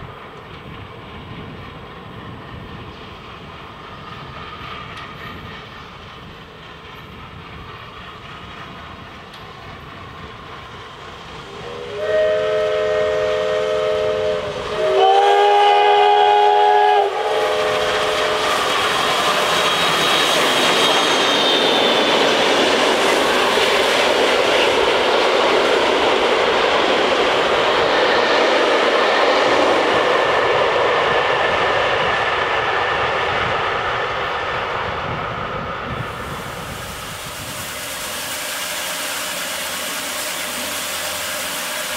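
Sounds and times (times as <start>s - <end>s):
train passing rushing noise: 0.0s - 41.9s
steam locomotive whistle: 11.5s - 22.1s, 36.2s - 41.9s.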